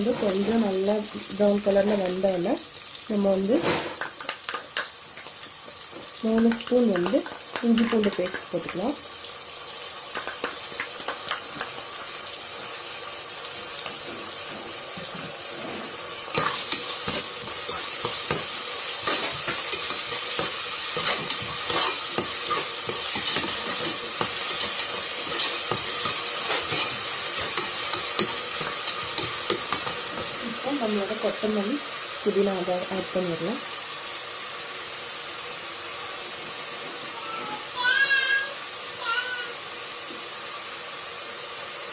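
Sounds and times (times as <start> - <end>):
onions sizzling in hot oil: 0.0 - 41.9
metal spoon scraping a pot: 19.0 - 30.3.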